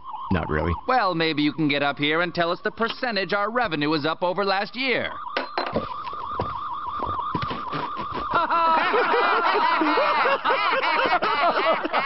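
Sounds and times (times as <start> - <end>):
wavering high tone: 0.0 - 2.8, 4.7 - 11.9
cartoon characters laughing: 7.7 - 12.0.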